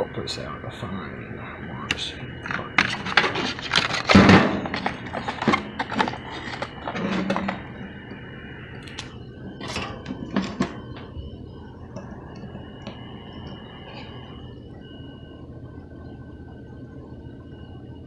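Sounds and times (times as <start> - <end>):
faint steady high tone: 4.6 - 18.0.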